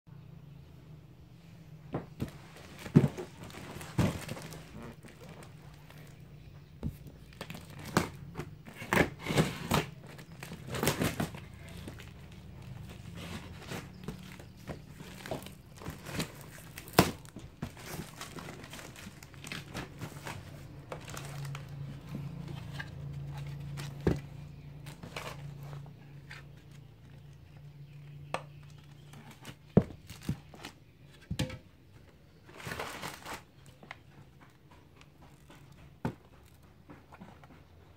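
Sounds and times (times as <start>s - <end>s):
plastic bags crinkling: 2.2s - 27.6s, 28.6s - 30.8s, 32.3s - 33.8s.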